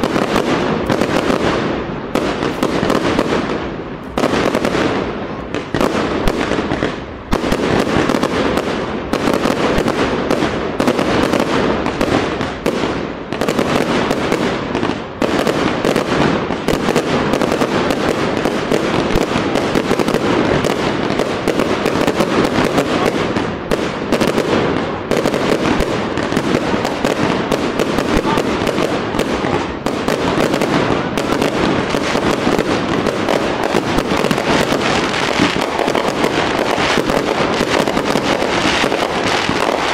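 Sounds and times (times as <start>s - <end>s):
fireworks bangs and crackling: 0.0s - 39.9s.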